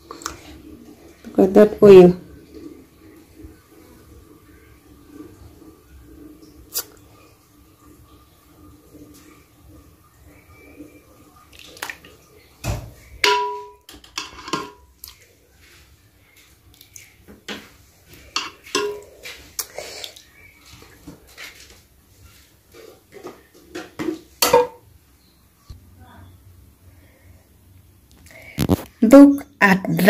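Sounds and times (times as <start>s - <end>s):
metal ladle clinking and scraping: 13.2s - 14.8s, 18.3s - 19.1s.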